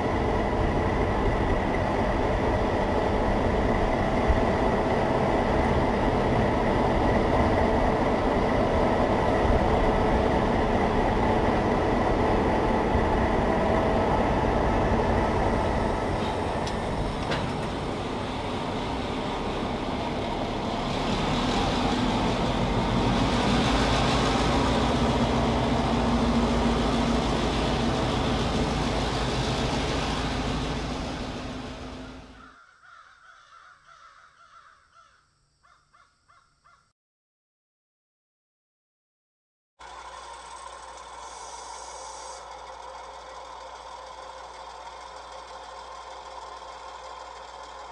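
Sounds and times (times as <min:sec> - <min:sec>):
diesel locomotive engine rumble: 0:00.0 - 0:32.6, 0:39.8 - 0:47.9
hiss: 0:41.2 - 0:42.5.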